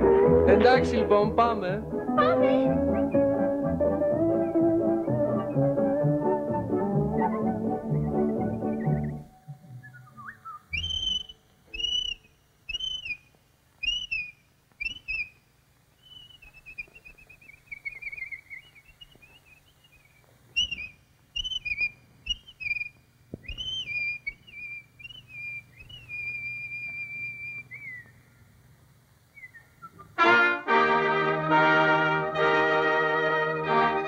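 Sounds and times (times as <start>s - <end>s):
faint film soundtrack hum: 0.0s - 34.0s
whistled bird calls: 7.0s - 15.4s, 16.0s - 28.3s, 29.3s - 30.2s.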